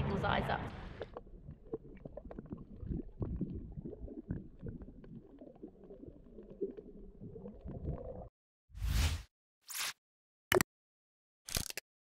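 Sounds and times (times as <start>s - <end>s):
small underwater clicks and pops: 0.8s - 8.2s
underwater gurgling and bubbling: 0.8s - 8.3s.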